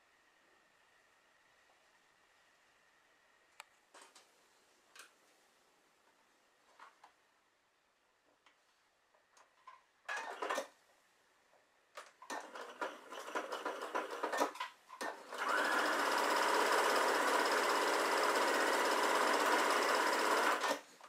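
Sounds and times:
sewing machine stitching: 10.1s - 10.7s, 12.2s - 21.0s.

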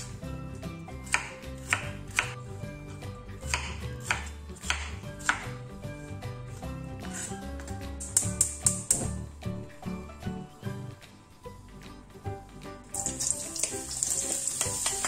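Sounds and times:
background music: 0.0s - 15.0s
knife chopping on wooden board: 1.0s - 2.4s, 3.4s - 5.6s.

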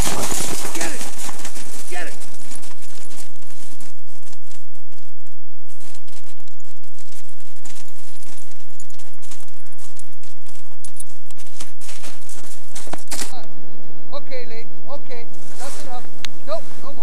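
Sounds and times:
footsteps crunching in snow: 0.0s - 13.3s, 15.3s - 16.9s.

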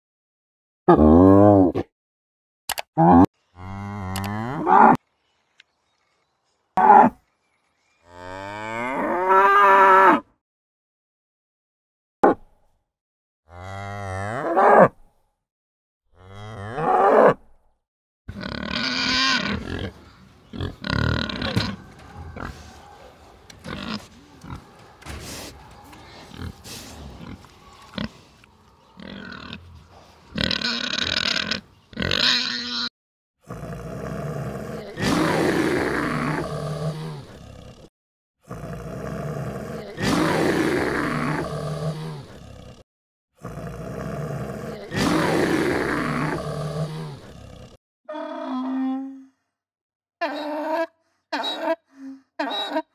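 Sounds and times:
bear roaring: 18.3s - 32.7s, 33.4s - 42.8s, 43.4s - 47.8s
pig grunting: 18.3s - 42.8s, 43.4s - 47.8s.

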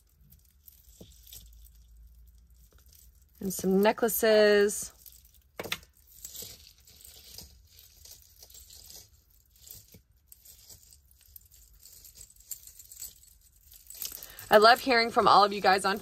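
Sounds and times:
jewelry clicking and clinking: 0.0s - 16.0s
soft rustling: 0.0s - 16.0s.

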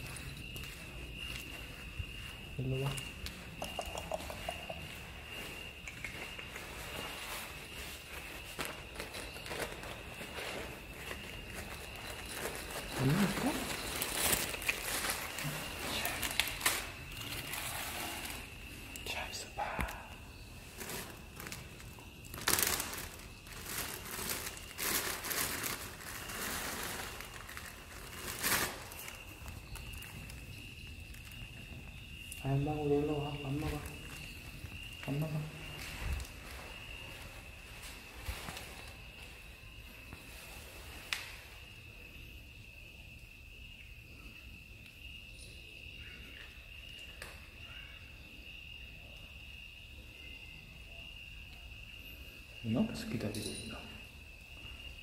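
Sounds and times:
crickets trilling: 0.0s - 55.0s
cat food bag crinkling: 8.5s - 18.5s, 20.8s - 30.4s
kittens crunching dry kibble: 10.7s - 17.7s.

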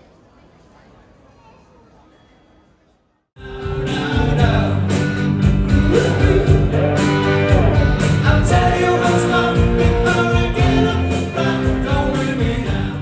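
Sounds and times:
rock song with singing: 3.4s - 13.0s.

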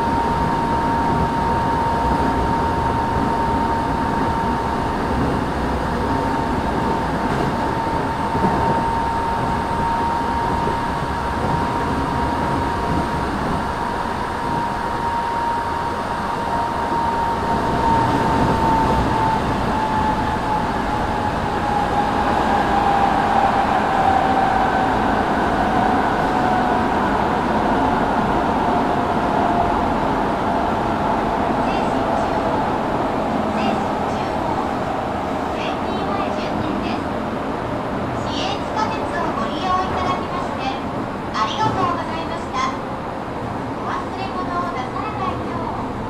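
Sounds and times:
train running with whine: 0.0s - 46.0s.

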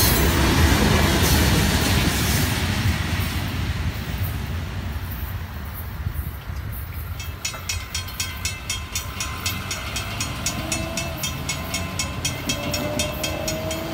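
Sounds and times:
low rumble of freight train: 0.0s - 13.9s
railroad crossing bell ringing: 6.8s - 13.9s.

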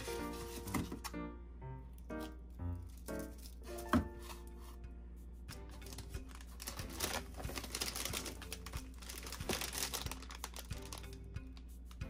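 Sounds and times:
background music: 0.0s - 12.0s
plastic packages rustling and clicking: 5.8s - 11.3s.

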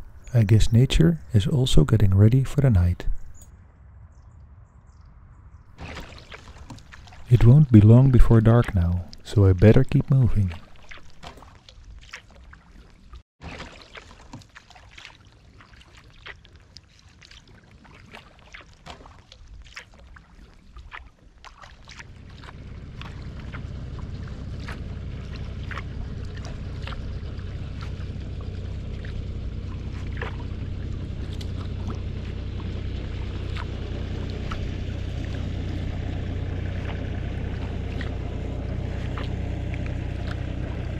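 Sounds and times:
paddle splashing in water: 5.8s - 40.9s
water dripping off paddle: 5.8s - 40.9s
low rumble: 22.0s - 40.9s.

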